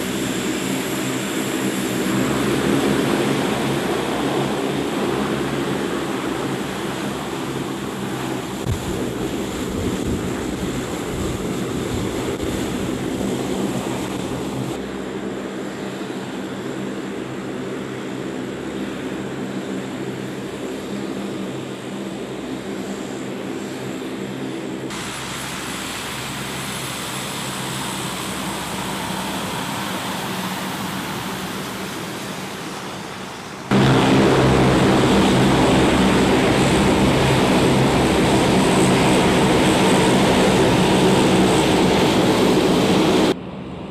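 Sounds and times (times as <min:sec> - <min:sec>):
turboprop aircraft engines droning: 0:00.0 - 0:43.9.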